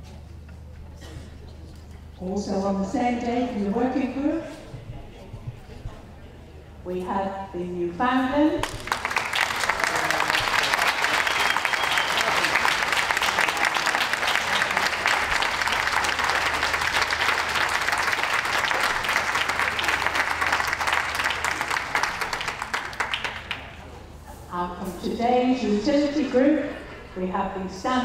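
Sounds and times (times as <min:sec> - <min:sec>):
audience applauding: 0:08.6 - 0:24.0.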